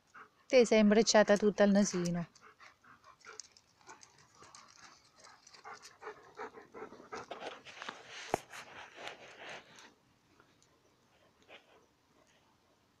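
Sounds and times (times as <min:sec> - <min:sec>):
dogs panting: 0:00.0 - 0:08.6.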